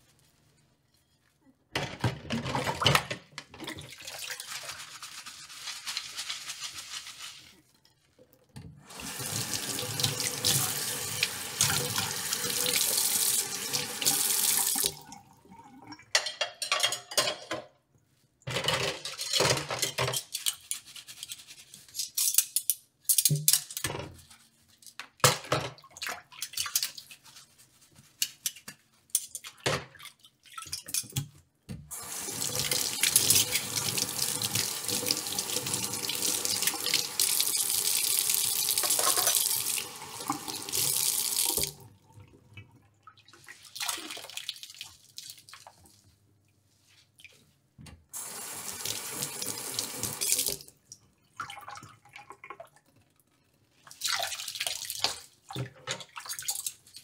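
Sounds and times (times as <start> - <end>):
dishes clinking: 16.2 - 17.7, 38.8 - 39.5.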